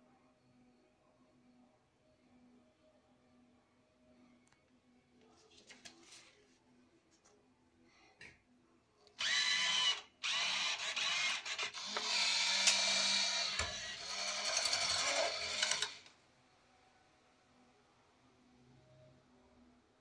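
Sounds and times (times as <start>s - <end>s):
bill acceptor motor whirring: 9.2s - 16.0s.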